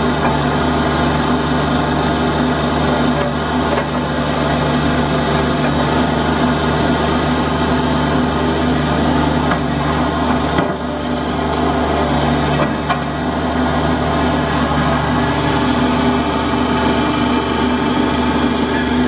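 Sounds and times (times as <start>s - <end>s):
diesel engine running: 0.0s - 19.0s.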